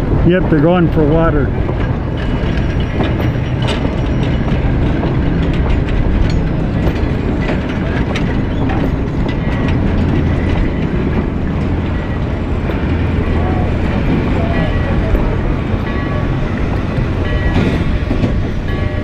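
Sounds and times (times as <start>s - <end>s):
clicks and clanks from cars: 0.0s - 19.0s
train wheels rumbling on rails: 0.0s - 19.0s.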